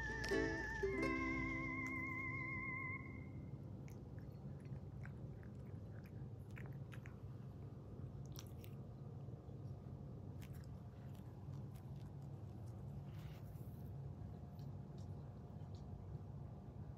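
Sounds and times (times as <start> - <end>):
cat chewing dry kibble: 3.7 - 16.2.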